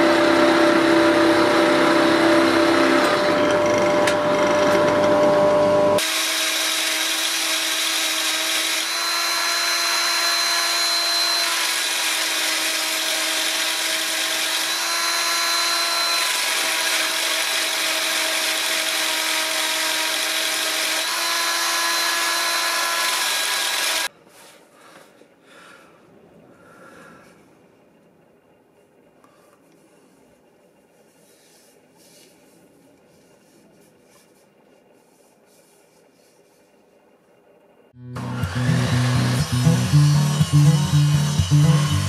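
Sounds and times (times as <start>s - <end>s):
drill motor whine: 0.0s - 24.1s, 38.0s - 42.0s.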